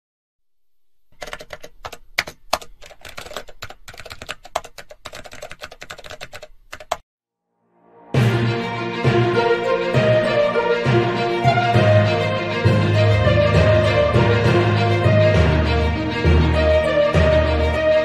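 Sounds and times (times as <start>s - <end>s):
fast typing on laptop keyboard: 1.2s - 7.0s
music: 7.4s - 18.0s.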